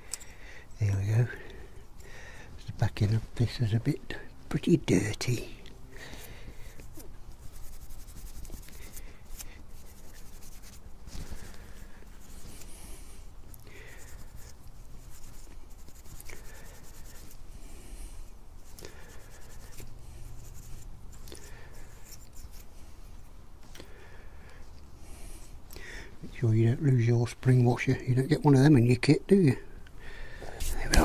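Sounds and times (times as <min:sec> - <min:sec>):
hands scraping small metal parts: 0:19.1 - 0:22.7.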